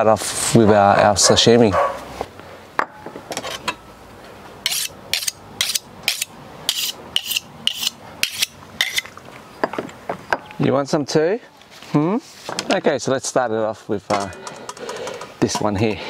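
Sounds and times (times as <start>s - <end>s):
knife scraping on sharpening stone: 4.6s - 9.1s.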